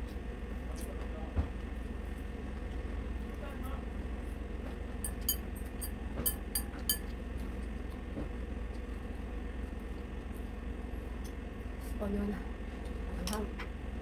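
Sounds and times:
steady low hum: 0:00.0 - 0:14.0
metal chopsticks clinking on bowl: 0:05.1 - 0:07.1.

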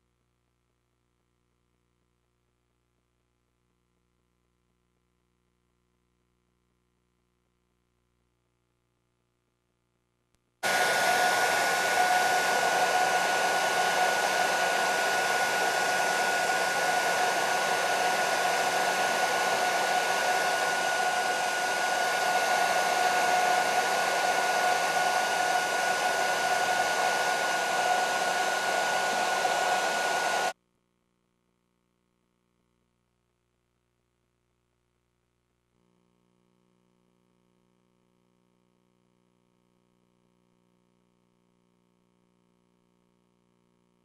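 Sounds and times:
hair dryer running: 0:10.6 - 0:30.6.

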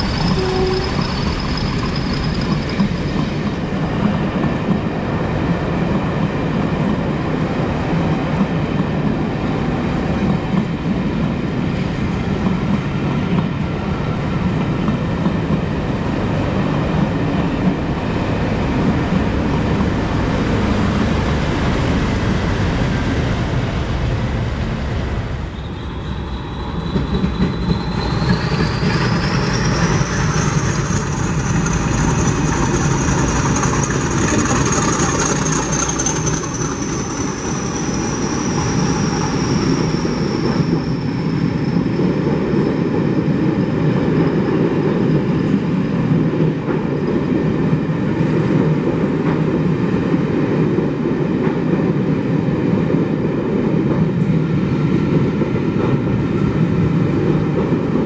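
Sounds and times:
diesel locomotive passing: 0:00.0 - 0:58.0
train coaches rumbling and clattering: 0:00.0 - 0:58.0.

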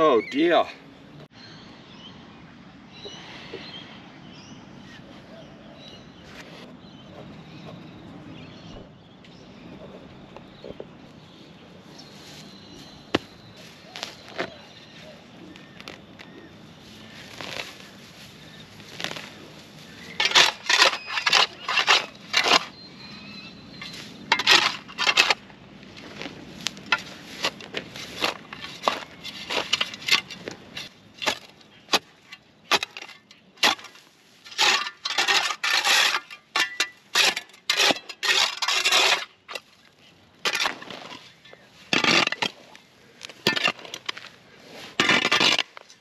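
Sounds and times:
spade chopping and scraping soil: 0:13.1 - 0:14.6, 0:17.2 - 0:17.9, 0:18.7 - 0:39.8, 0:40.4 - 0:46.0.

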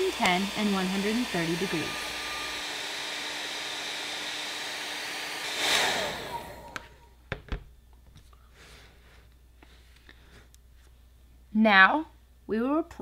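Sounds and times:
hair dryer blowing: 0:00.0 - 0:07.0
hair dryer motor whining down: 0:00.0 - 0:07.0.

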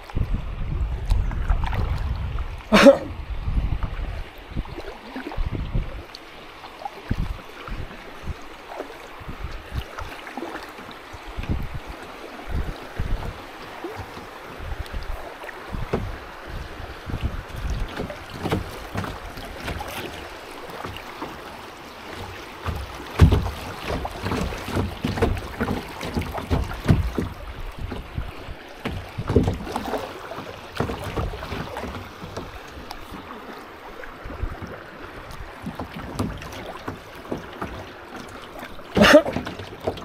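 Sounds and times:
wind buffeting microphone: 0:00.0 - 0:06.2, 0:07.0 - 0:10.1, 0:11.0 - 0:21.0, 0:22.1 - 0:36.6
paddle splashing in water: 0:00.9 - 0:40.0
low knocks and thumps: 0:12.5 - 0:33.3, 0:34.3 - 0:37.9.

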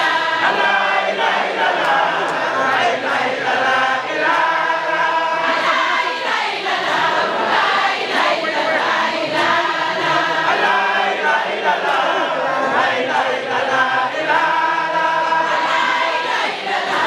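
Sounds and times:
voices chanting in unison: 0:00.0 - 0:17.0.

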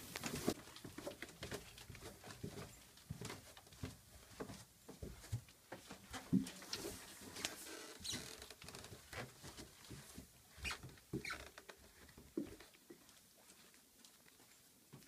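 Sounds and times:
footsteps on carpet: 0:08.8 - 0:15.0.

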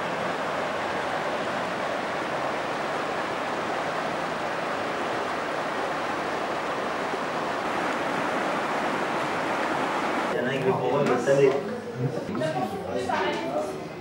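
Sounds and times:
river water rushing: 0:00.0 - 0:10.4.

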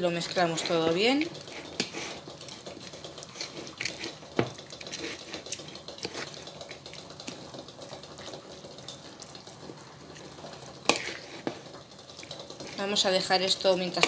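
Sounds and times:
utensil stirring salad in plastic bowl: 0:00.0 - 0:14.0.

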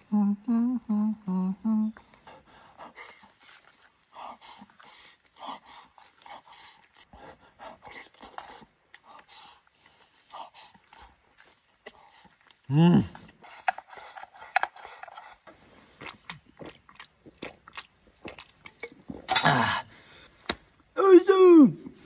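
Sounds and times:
man humming with relish: 0:00.0 - 0:03.4, 0:12.6 - 0:13.4
man chewing food: 0:02.0 - 0:19.4.

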